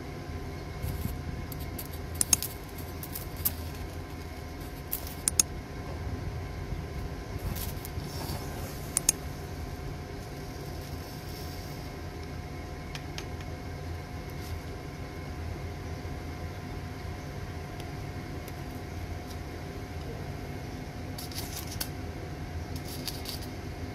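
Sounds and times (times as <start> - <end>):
steady low hum: 0.0 - 23.9
electric arc snaps and crackles: 0.8 - 5.5.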